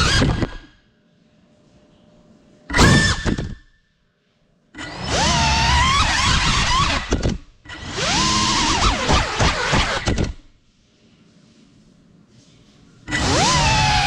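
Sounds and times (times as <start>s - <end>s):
drone motors whining: 4.8s - 10.4s, 13.1s - 14.0s.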